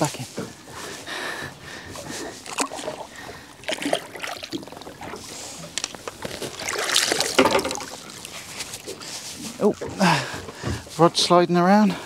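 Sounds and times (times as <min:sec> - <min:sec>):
wind and sea hiss: 0:00.0 - 0:12.0
knocks and handling bumps: 0:07.3 - 0:07.9.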